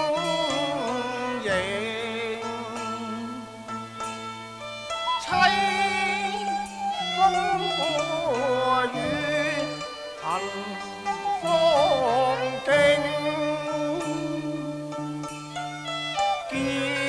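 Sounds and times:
man singing opera: 0:00.0 - 0:03.6, 0:05.2 - 0:15.3, 0:16.5 - 0:17.0
string instrument accompaniment: 0:00.0 - 0:17.0.

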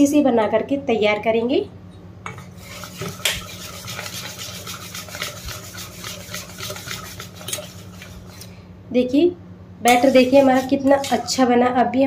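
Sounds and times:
whisk scraping a steel bowl: 0:02.4 - 0:08.6, 0:09.9 - 0:11.6.

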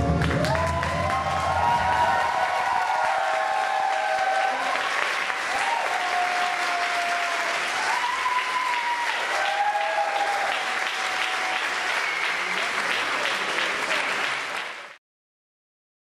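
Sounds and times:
audience applauding: 0:00.0 - 0:15.0
long held whoops: 0:00.2 - 0:04.9, 0:05.5 - 0:12.4.

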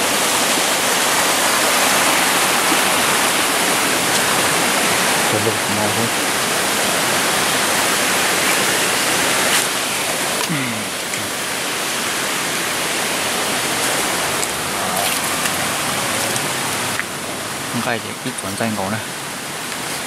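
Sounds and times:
water hissing: 0:01.3 - 0:18.6.

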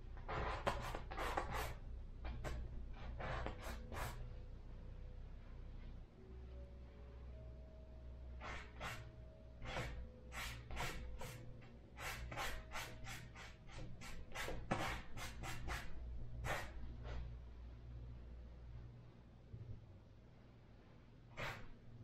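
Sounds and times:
low steady hum: 0:00.0 - 0:22.0
painting tool scraping canvas: 0:00.2 - 0:04.2, 0:08.4 - 0:11.4, 0:12.0 - 0:17.2, 0:21.3 - 0:21.8.

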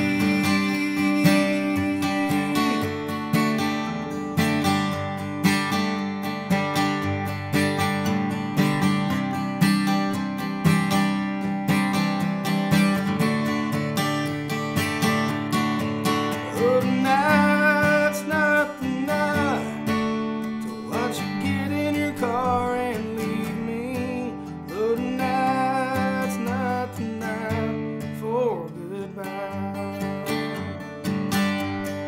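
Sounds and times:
person singing: 0:00.0 - 0:03.3, 0:16.4 - 0:19.9, 0:20.6 - 0:30.9
acoustic guitar strummed: 0:00.0 - 0:32.0.

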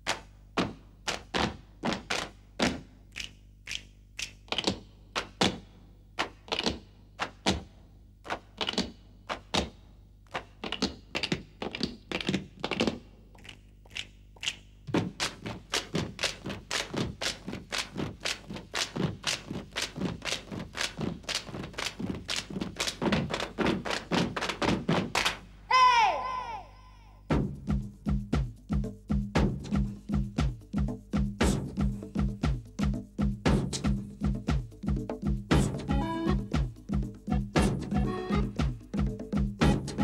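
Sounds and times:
boots footsteps on hard floor: 0:14.9 - 0:25.1.

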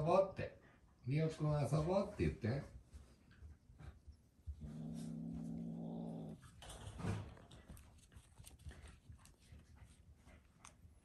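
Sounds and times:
kitten growling: 0:04.5 - 0:06.6.

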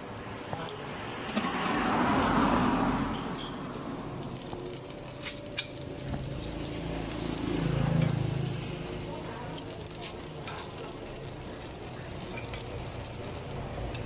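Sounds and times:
vehicle passing: 0:00.2 - 0:11.4.

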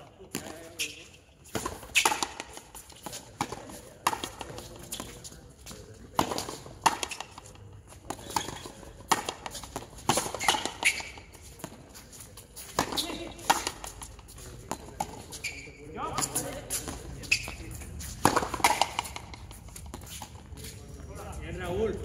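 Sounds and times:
ball cracking off racquets: 0:01.5 - 0:05.2, 0:06.1 - 0:11.8, 0:12.6 - 0:15.6, 0:18.2 - 0:20.3.

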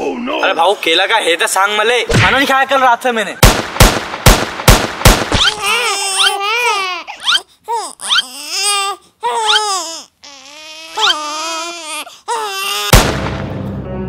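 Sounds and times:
sudden hit: 0:12.9 - 0:14.0
music: 0:13.2 - 0:14.0.

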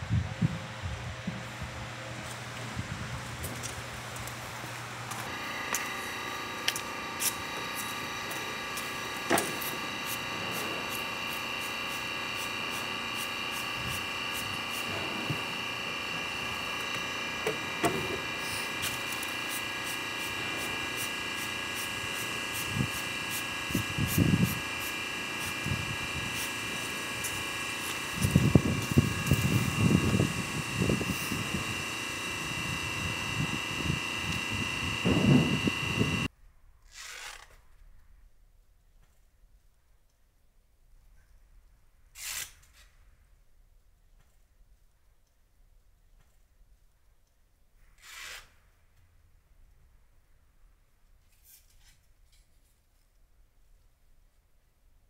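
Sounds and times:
high-pitched hum: 0:00.0 - 0:36.3.

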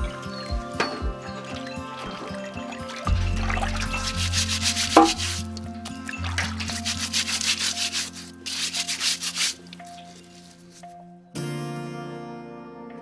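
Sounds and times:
background music: 0:00.0 - 0:13.0
sharp knock: 0:03.1 - 0:05.6
rapid rubbing strokes: 0:03.1 - 0:10.6.

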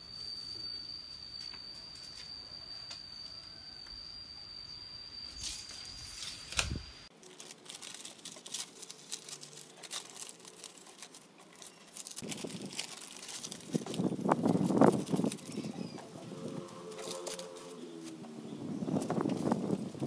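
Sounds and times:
newspaper rustling and crinkling: 0:07.1 - 0:18.2.

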